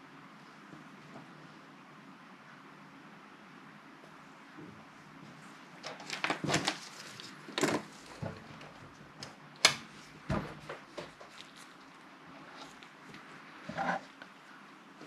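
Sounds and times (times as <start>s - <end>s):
rustling: 10.0s - 14.3s.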